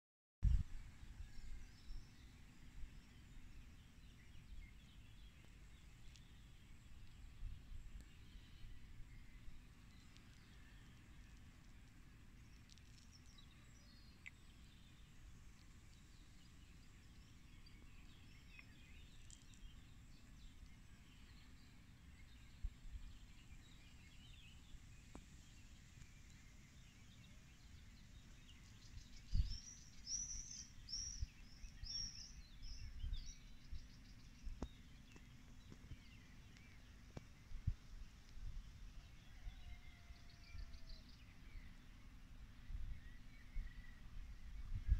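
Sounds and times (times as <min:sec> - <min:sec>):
wind rumble on microphone: 0:00.4 - 0:11.8, 0:14.8 - 0:25.6, 0:28.3 - 0:40.9, 0:42.4 - 0:44.9
small birds chirping: 0:01.2 - 0:44.9.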